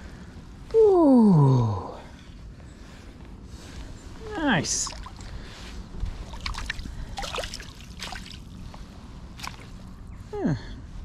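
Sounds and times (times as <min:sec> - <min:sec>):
water splashing and dripping: 0:04.6 - 0:05.3, 0:06.2 - 0:08.6, 0:09.4 - 0:09.8.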